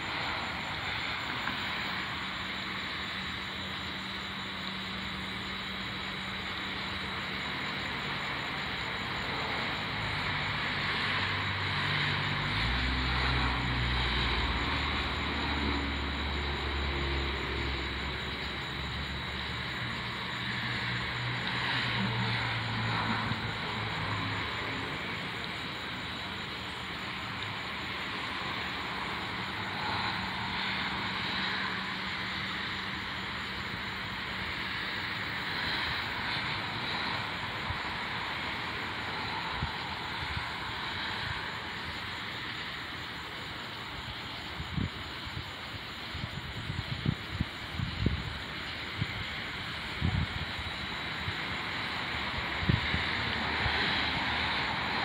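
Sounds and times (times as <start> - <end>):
steady high hiss: 0.0 - 55.0.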